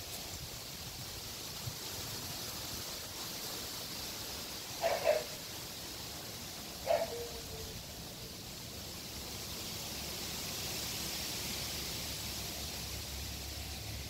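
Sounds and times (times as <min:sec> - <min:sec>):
outdoor background hiss: 0:00.0 - 0:14.0.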